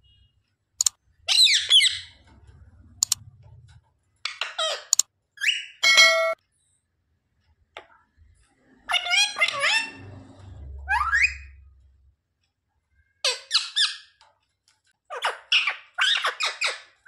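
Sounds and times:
sharp clicks: 0.8s - 1.0s, 2.1s - 5.1s
parakeet chattering calls: 1.3s - 2.2s, 8.9s - 10.1s, 13.2s - 14.2s, 15.1s - 17.0s
parakeet screech: 8.9s - 10.1s.

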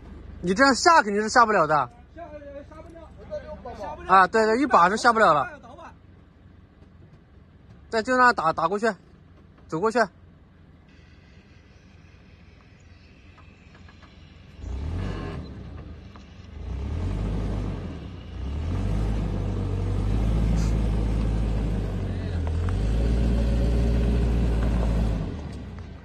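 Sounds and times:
car engine revving on gravel: 13.5s - 26.0s.

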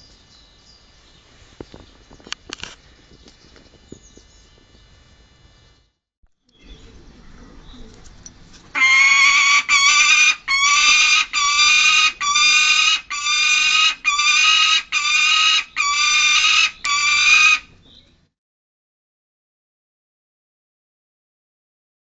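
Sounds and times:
falcon calling: 8.8s - 17.7s.

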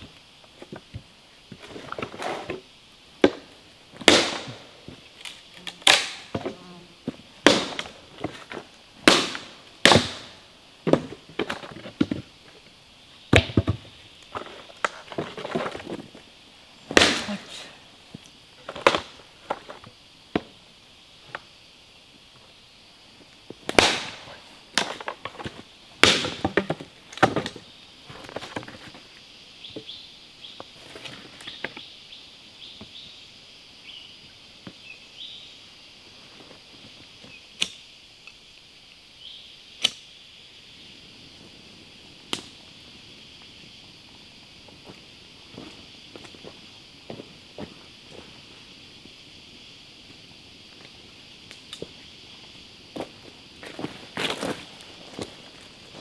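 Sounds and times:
insect drone: 0.0s - 56.0s
wood cracking: 5.1s - 6.6s
hatchet chopping log: 5.8s - 6.6s, 9.1s - 10.2s.

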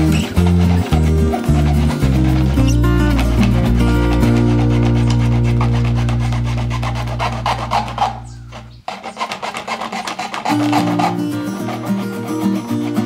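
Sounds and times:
background music: 0.0s - 8.2s
saw rasping through plastic: 0.0s - 13.0s.

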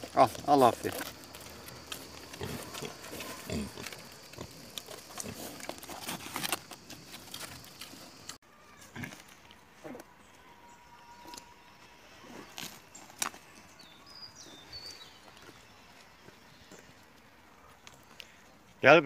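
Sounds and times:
boars grunting: 1.7s - 5.9s.

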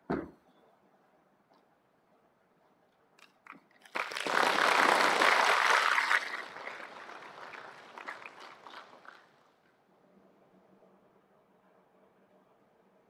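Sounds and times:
audience applauding: 3.8s - 9.3s.

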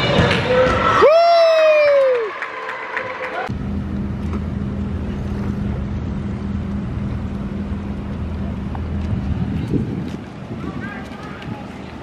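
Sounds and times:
machine humming: 3.5s - 10.6s.

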